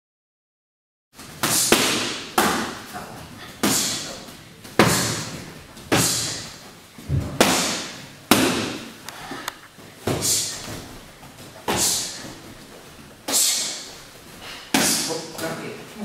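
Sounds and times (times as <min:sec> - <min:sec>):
punches slapping focus mitts: 0:01.4 - 0:02.8, 0:07.2 - 0:08.9.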